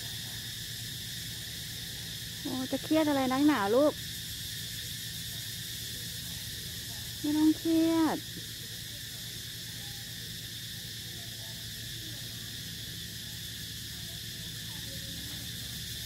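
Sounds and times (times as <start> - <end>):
even hiss: 0.0 - 16.0
steady low hum: 0.0 - 16.0.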